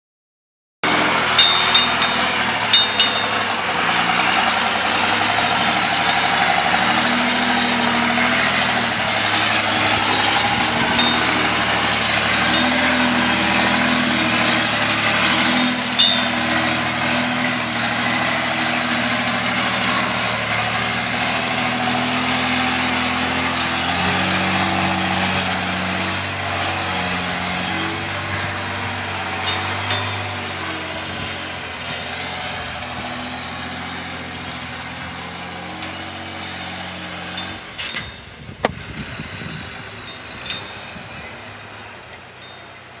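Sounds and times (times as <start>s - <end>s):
truck engine running under load: 0.8s - 43.0s
sharp metal clanks: 0.9s - 20.1s, 29.1s - 32.4s, 34.4s - 38.8s, 40.0s - 41.0s.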